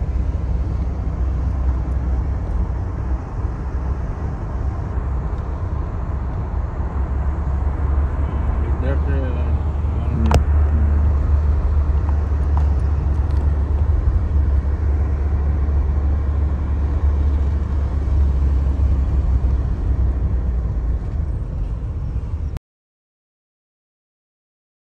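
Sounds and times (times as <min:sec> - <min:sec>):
car engine and tyres rumbling: 0:00.0 - 0:22.6.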